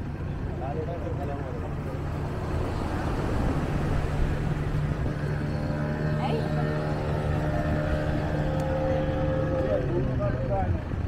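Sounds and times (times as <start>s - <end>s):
engine droning hum: 0.0s - 11.0s
high even tone: 4.6s - 10.1s.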